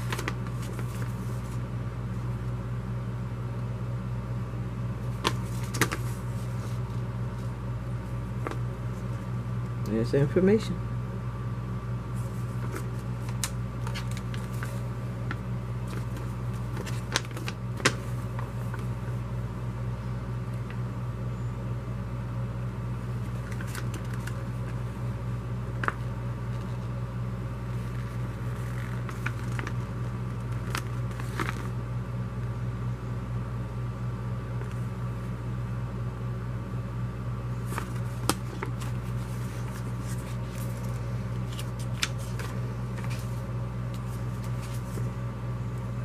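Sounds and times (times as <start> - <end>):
paper and plastic crinkling: 0.0 - 1.6, 5.1 - 6.9, 12.2 - 18.9, 23.3 - 24.8, 27.8 - 31.7, 37.6 - 45.1
steady low hum: 0.0 - 46.0.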